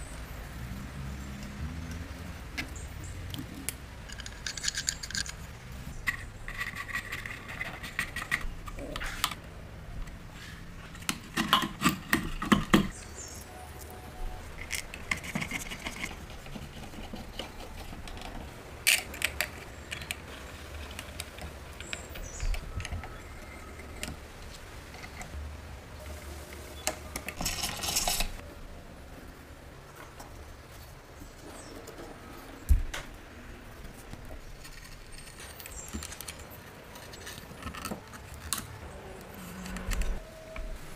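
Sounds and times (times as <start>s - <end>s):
small metal parts clinking: 4.0s - 8.4s, 27.2s - 28.4s.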